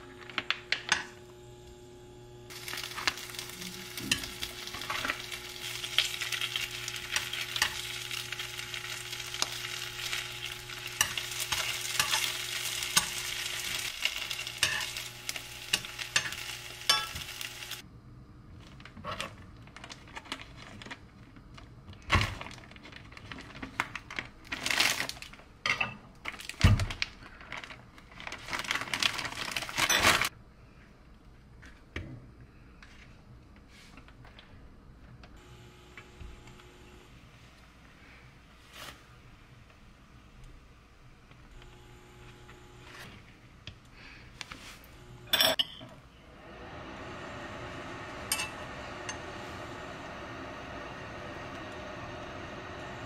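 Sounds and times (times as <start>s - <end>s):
steady hum: 0.0s - 18.6s, 35.3s - 38.4s, 40.0s - 53.0s
meat sizzling in a frying pan: 2.5s - 17.8s
plastic bag rustling: 2.5s - 17.8s, 18.6s - 25.6s, 26.2s - 30.3s.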